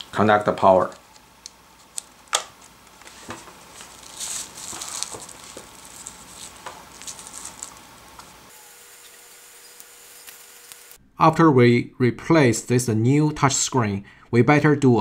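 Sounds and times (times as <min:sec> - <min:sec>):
faint steady hum: 0:00.0 - 0:14.8
plastic crinkling and rustling: 0:01.8 - 0:08.5.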